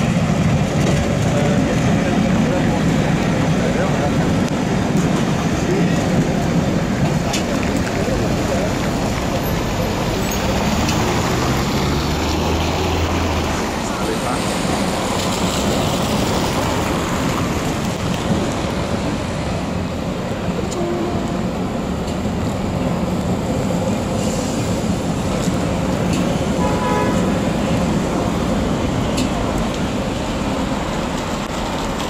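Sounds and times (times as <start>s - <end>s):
street traffic on wet pavement: 0.0s - 32.0s
tram moving on wet rails: 0.0s - 32.0s
horn-like tone: 26.6s - 27.3s.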